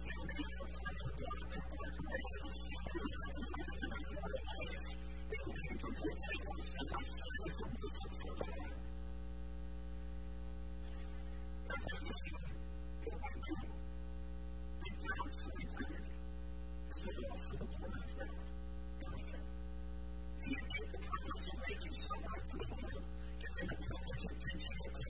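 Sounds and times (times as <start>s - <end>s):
electrical mains hum: 0.0s - 25.0s
man speaking faintly: 14.8s - 16.1s.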